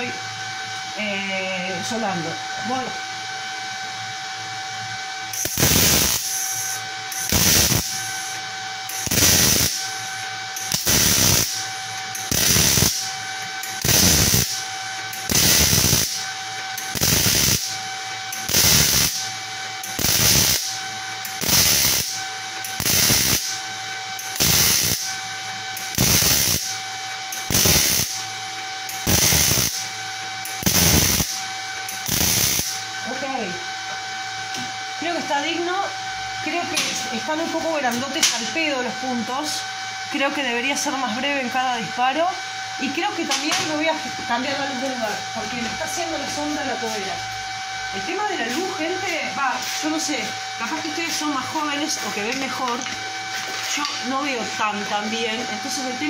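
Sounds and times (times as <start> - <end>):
welding arc crackling: 5.3 - 33.1
faint steady machine tone: 5.3 - 39.8.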